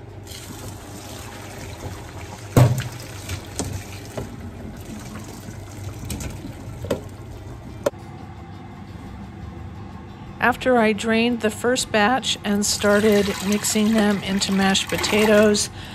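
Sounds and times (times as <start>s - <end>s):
water pouring into metal colander: 0.2s - 6.9s, 12.8s - 15.7s
knocks in sink: 2.5s - 4.3s, 6.1s - 7.1s.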